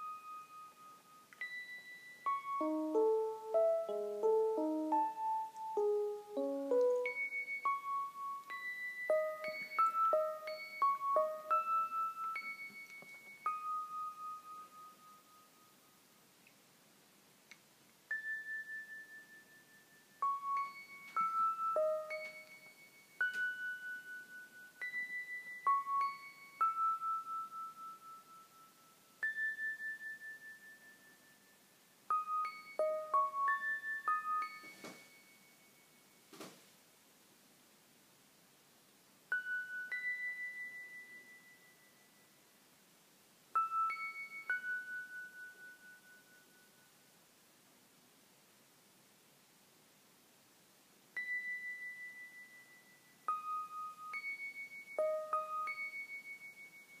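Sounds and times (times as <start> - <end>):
electronic notes: 2.2 - 12.5, 20.2 - 22.6, 55.0 - 55.8.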